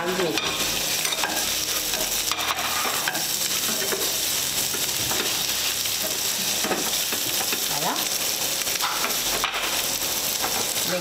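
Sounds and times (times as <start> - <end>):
vegetables sizzling in oil: 0.0 - 11.0
spatula scraping a pan: 0.2 - 7.4.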